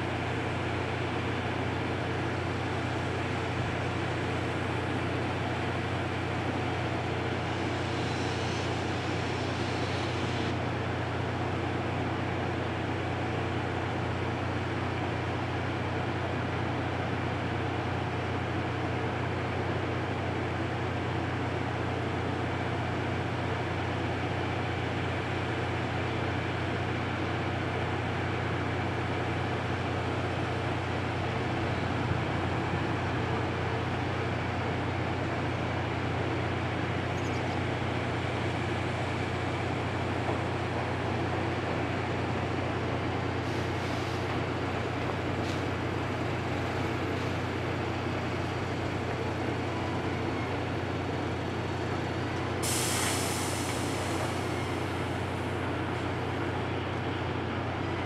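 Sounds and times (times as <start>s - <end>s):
steam locomotive rumble and hiss: 0.0s - 58.0s
sudden loud steam hiss: 7.5s - 10.6s, 43.4s - 44.3s, 52.6s - 55.6s.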